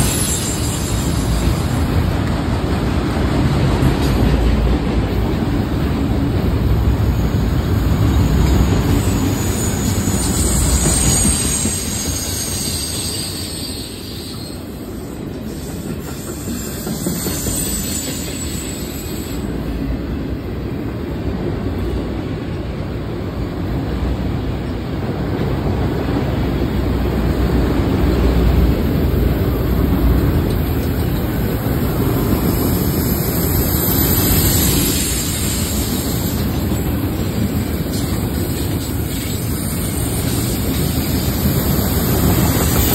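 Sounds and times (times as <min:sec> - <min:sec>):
high wheel squeal: 0:00.0 - 0:01.9, 0:08.0 - 0:19.6, 0:32.6 - 0:37.1, 0:37.9 - 0:42.9
train wheels rumbling on rails: 0:00.0 - 0:42.9.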